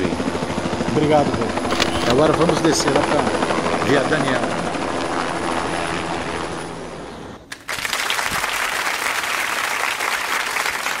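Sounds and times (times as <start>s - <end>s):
helicopter engine and rotor: 0.0s - 7.5s
group applauding: 7.5s - 11.0s.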